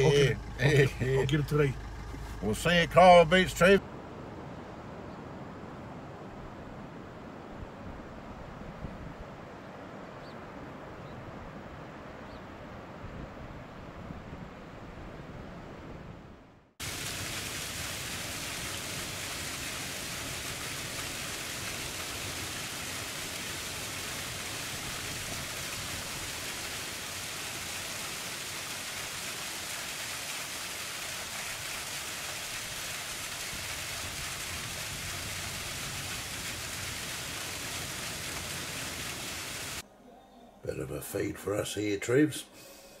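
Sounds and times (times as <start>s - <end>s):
waterfall splashing into a pool: 16.8s - 39.8s.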